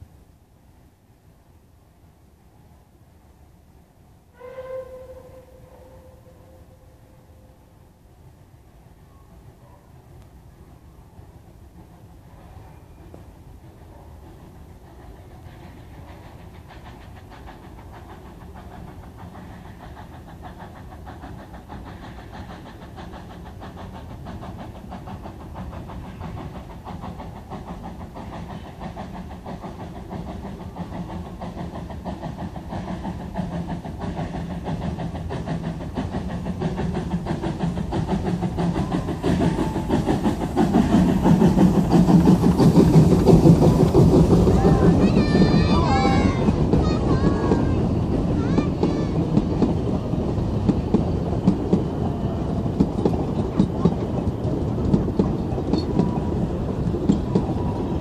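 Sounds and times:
steam locomotive exhaust beats: 0:10.0 - 0:58.0.

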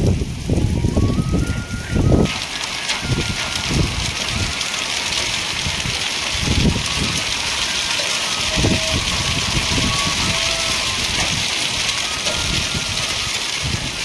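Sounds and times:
heavy rain and hail on roof: 0:00.0 - 0:14.0
wind buffeting microphone: 0:00.0 - 0:14.0.

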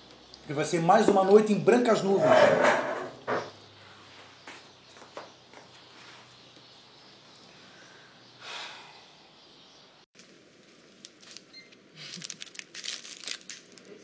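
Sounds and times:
plastic packets crinkling: 0:10.2 - 0:14.0.

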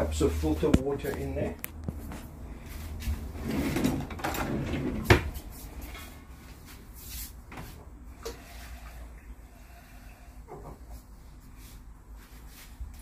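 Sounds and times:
cabinet opened and shut: 0:03.4 - 0:05.4.

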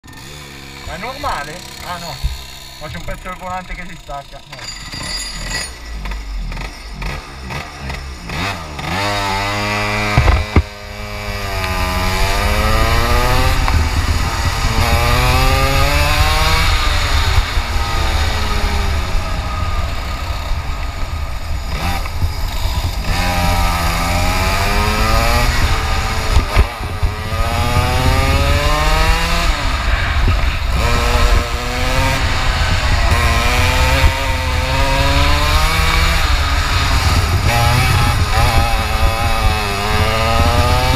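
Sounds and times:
kart engine revving: 0:00.0 - 0:40.9
sharp knock: 0:10.1 - 0:10.7.

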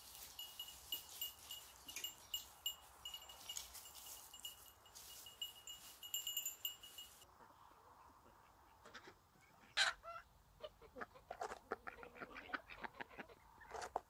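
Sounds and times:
small metal bell jingling: 0:00.0 - 0:07.3.

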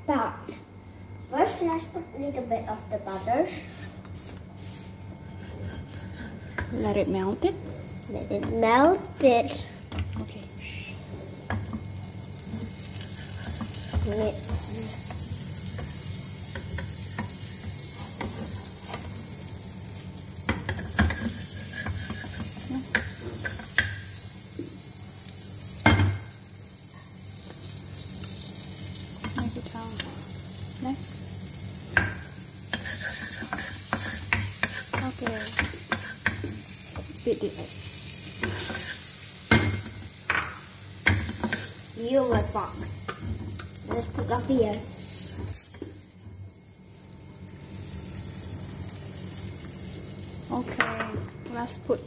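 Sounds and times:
wooden spatula scraping a pan: 0:03.5 - 0:07.0, 0:21.0 - 0:23.5, 0:32.7 - 0:36.4
butter sizzling in a frying pan: 0:05.0 - 0:51.8.

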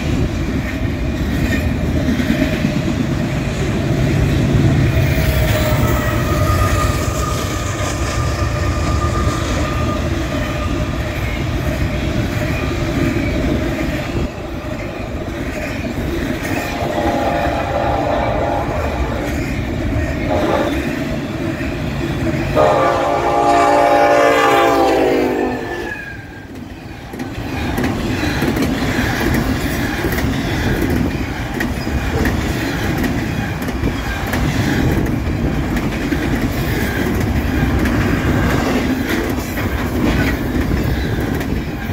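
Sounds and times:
train rumbling and clacking past: 0:00.0 - 0:41.9
locomotive air horn blasts: 0:16.6 - 0:19.3, 0:20.3 - 0:20.8, 0:22.6 - 0:25.9.

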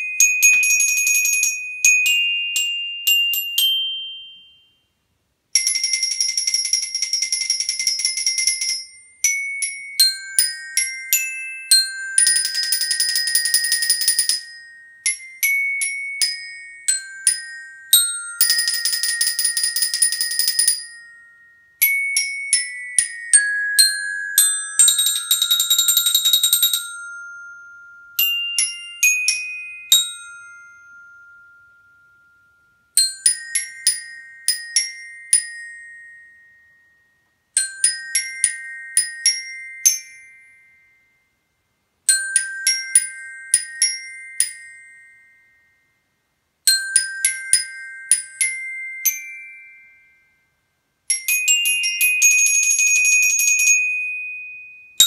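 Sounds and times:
glockenspiel struck with mallets: 0:00.0 - 0:04.9, 0:05.6 - 0:41.4, 0:42.1 - 0:46.0, 0:46.7 - 0:55.0.

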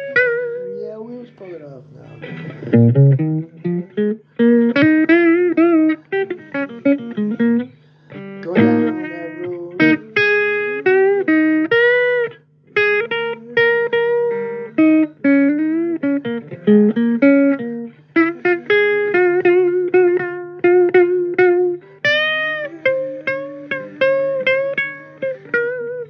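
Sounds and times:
blues guitar lead: 0:00.0 - 0:26.0
steady low hum: 0:00.1 - 0:26.0.

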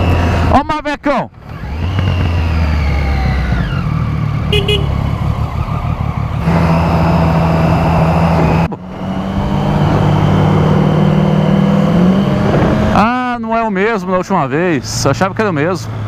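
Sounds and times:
wind and road noise: 0:00.0 - 0:16.0
motorcycle engine: 0:01.3 - 0:13.4.

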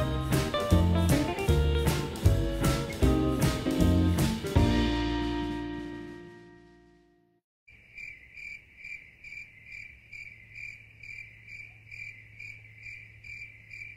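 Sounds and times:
music chord: 0:00.0 - 0:07.3
night insects chirping: 0:07.7 - 0:13.9.

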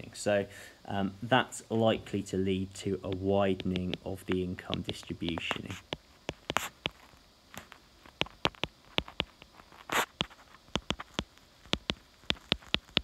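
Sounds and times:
stylus tapping on glass screen: 0:08.2 - 0:09.5, 0:10.2 - 0:13.0.

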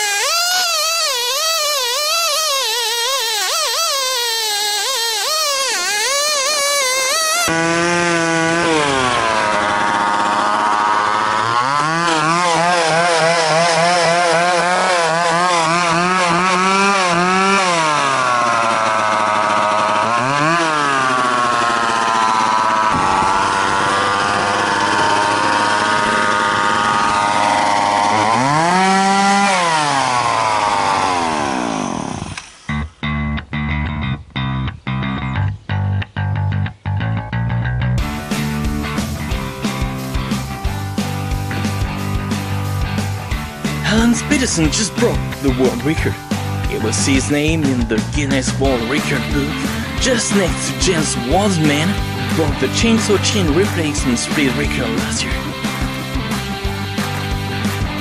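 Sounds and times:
chainsaw cutting log: 0:00.0 - 0:32.8, 0:38.0 - 0:58.0.

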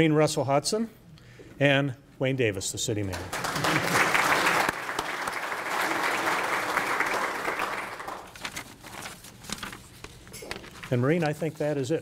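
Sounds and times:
audience applauding: 0:03.1 - 0:08.4.

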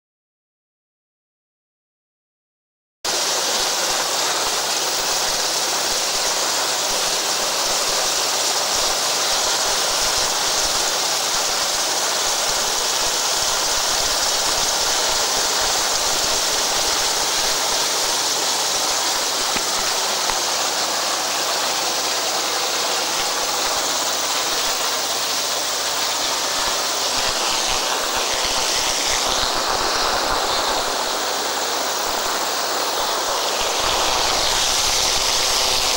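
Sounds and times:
wind and spray rushing: 0:23.0 - 0:35.9.

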